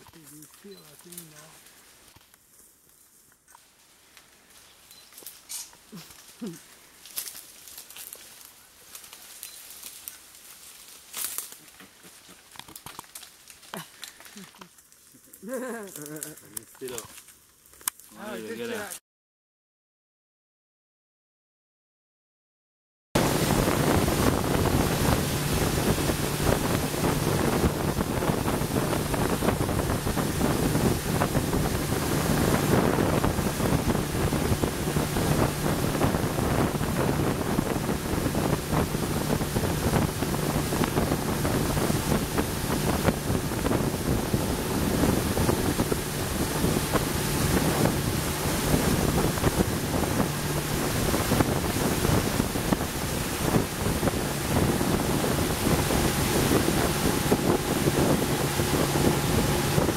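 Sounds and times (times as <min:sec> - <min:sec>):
motorboat engine drone: 0:23.2 - 0:59.9
water rushing past hull: 0:23.2 - 0:59.9
wind buffeting microphone: 0:23.2 - 0:59.9.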